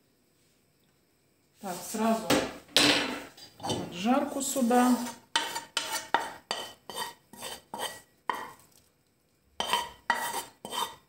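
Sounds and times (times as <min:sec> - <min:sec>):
wooden spatula scraping a pan: 0:03.1 - 0:08.7, 0:09.6 - 0:11.0.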